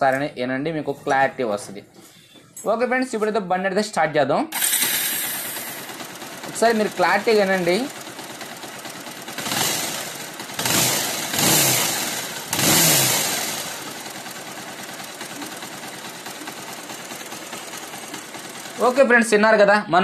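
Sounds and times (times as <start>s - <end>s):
motorcycle engine revving and idling: 4.6s - 19.4s.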